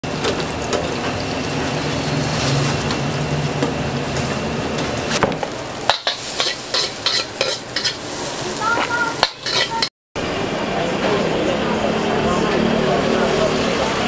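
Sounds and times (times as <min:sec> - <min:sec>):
rice sizzling in a wok: 0:05.7 - 0:09.9
metal spatula scraping a wok: 0:05.9 - 0:09.9.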